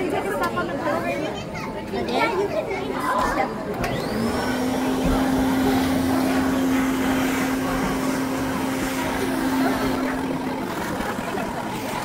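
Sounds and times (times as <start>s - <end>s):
blower humming with air rush: 3.8s - 12.0s.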